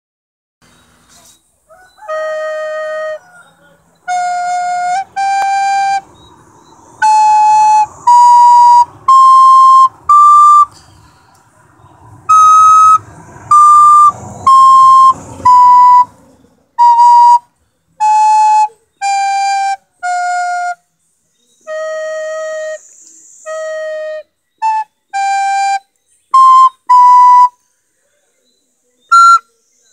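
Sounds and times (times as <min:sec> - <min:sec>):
recorder playing slow melody: 0:02.0 - 0:03.4, 0:04.0 - 0:06.3, 0:07.0 - 0:10.8, 0:12.3 - 0:16.1, 0:16.8 - 0:20.9, 0:21.6 - 0:27.6, 0:29.1 - 0:29.5.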